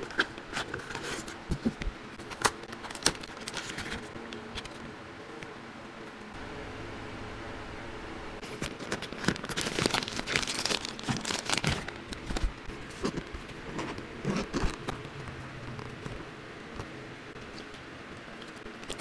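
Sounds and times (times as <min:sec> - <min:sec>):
faint steady hum: 0:00.0 - 0:19.0
plastic packaging crinkling: 0:08.4 - 0:16.2.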